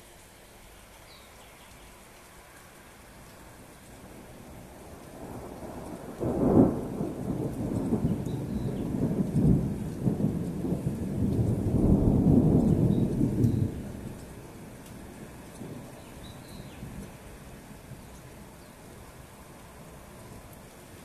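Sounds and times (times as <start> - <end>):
thunder clap and rumble: 4.1 - 18.4.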